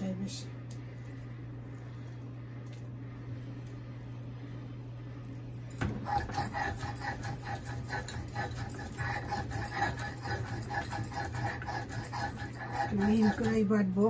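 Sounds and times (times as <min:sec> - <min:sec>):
steady low hum: 0:00.0 - 0:14.0
stone roller scraping on stone: 0:06.2 - 0:13.8.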